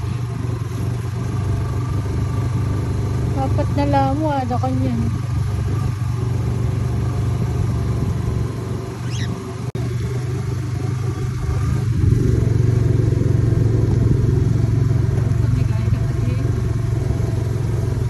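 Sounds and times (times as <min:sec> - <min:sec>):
vehicle engine running: 0:00.0 - 0:18.0
parrot chirp: 0:09.0 - 0:09.5.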